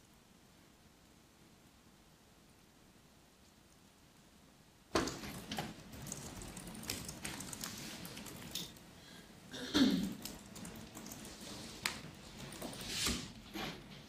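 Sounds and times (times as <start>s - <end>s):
keyboard typing: 5.0s - 8.9s, 10.0s - 13.4s.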